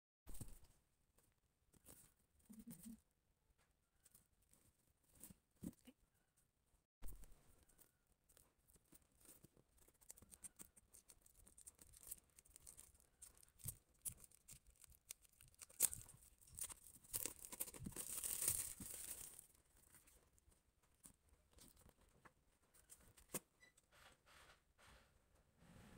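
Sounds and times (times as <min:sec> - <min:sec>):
plastic wrap crinkling and tearing: 0:08.7 - 0:20.1.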